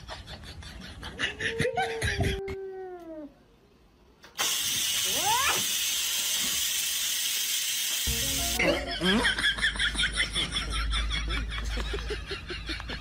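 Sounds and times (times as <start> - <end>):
steady hiss: 4.3 - 8.6.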